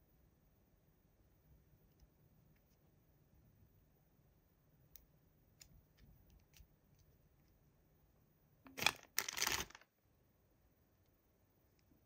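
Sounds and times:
plastic bag crinkling: 0:08.7 - 0:09.9.

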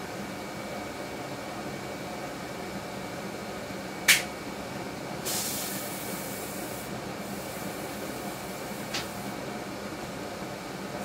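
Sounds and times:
furnace blower motor running: 0:00.0 - 0:11.0
brief hiss: 0:05.3 - 0:06.6.

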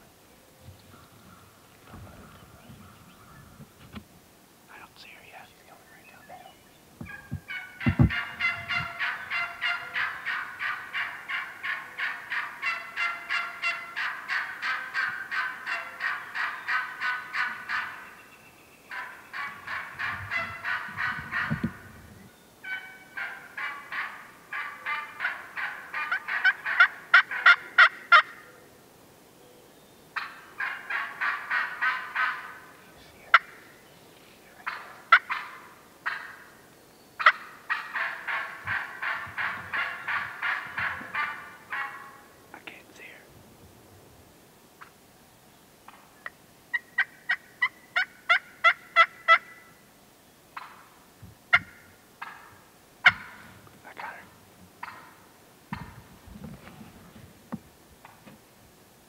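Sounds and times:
turkey hen yelping: 0:07.0 - 0:18.1, 0:18.9 - 0:21.8, 0:22.6 - 0:28.5, 0:30.2 - 0:32.7, 0:34.6 - 0:36.5, 0:37.2 - 0:42.3, 0:46.7 - 0:49.7, 0:51.5 - 0:53.5, 0:54.8 - 0:56.0.

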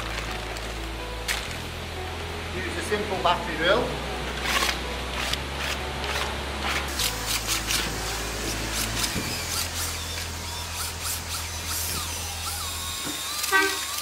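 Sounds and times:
drill mixing paddle in bucket: 0:05.6 - 0:14.0.

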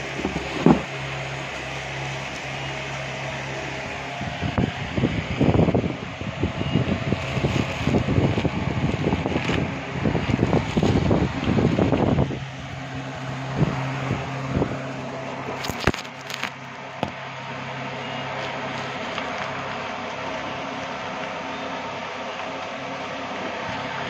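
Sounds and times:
electric fan hum: 0:00.0 - 0:24.0
plastic packaging crinkling: 0:07.1 - 0:17.2, 0:18.3 - 0:20.3.

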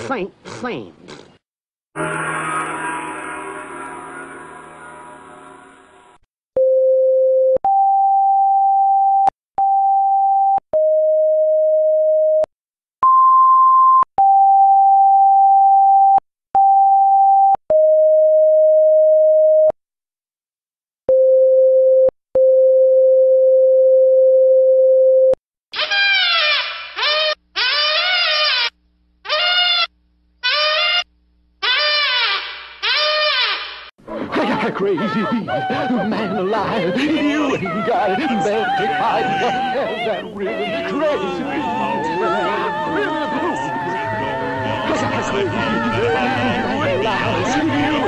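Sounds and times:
gong ringing: 0:02.0 - 0:06.0
cartoon cries: 0:29.3 - 0:31.0, 0:31.6 - 0:33.6, 0:34.6 - 0:45.5.

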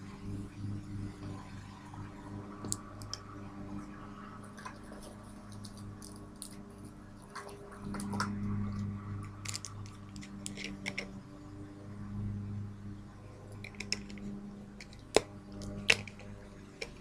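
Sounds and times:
steady low hum: 0:00.0 - 0:17.0
small objects clicking: 0:09.2 - 0:11.2, 0:13.6 - 0:17.0.

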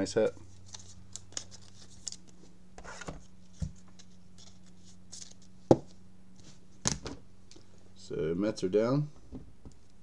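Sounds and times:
faint steady hum: 0:00.0 - 0:10.0
cards rustling in plastic sleeves: 0:00.5 - 0:05.6.

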